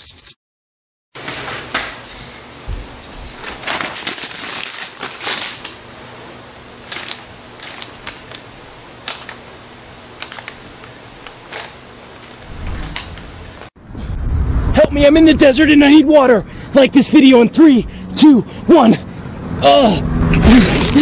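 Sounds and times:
paper crinkling and rustling: 1.2 - 2.0, 3.3 - 5.8, 6.8 - 9.5, 10.2 - 13.2
low rumble: 12.4 - 16.7.

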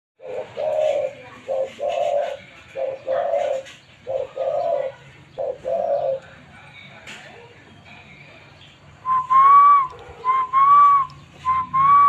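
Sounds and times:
dove cooing: 0.2 - 6.3.

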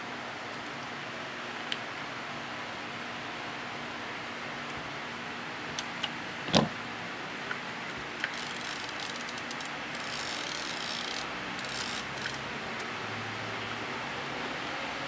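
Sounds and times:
film-advance crank ratcheting: 8.2 - 12.4.

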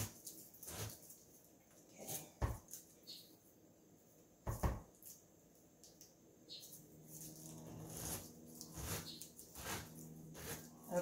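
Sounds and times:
corer scraping through pineapple: 0.0 - 1.1, 7.1 - 11.0.

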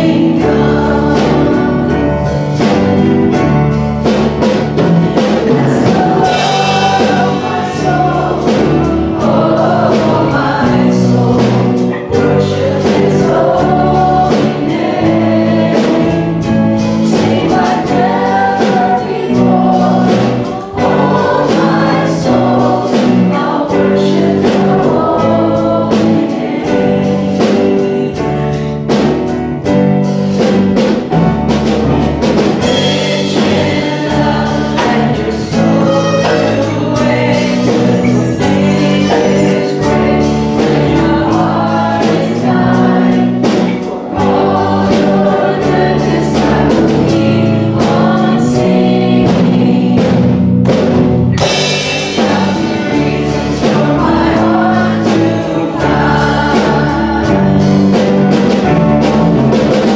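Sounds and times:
backing singers: 0.0 - 29.4, 30.4 - 59.9
bass guitar: 0.0 - 59.9
drum kit beat: 0.0 - 59.9
electric guitar: 0.0 - 59.9
keyboard: 0.0 - 59.9
woman singing lead vocal: 33.2 - 43.4.

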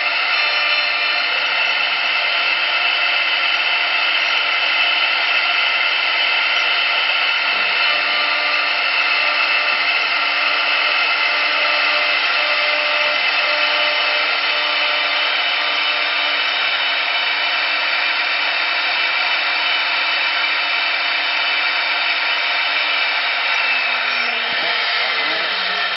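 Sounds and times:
router spindle whining: 0.0 - 25.9
hiss of cutting wood: 20.2 - 25.9.

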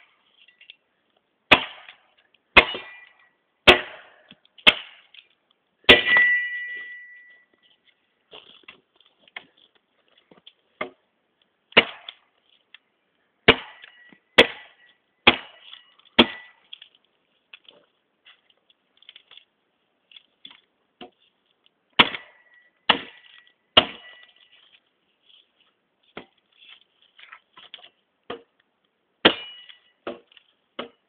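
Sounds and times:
machete chopping wood: 1.5 - 2.0, 2.6 - 5.2, 5.9 - 6.7, 10.8 - 11.0, 11.7 - 12.2, 13.4 - 16.6, 22.0 - 24.4, 27.6 - 28.5, 29.2 - 31.0.

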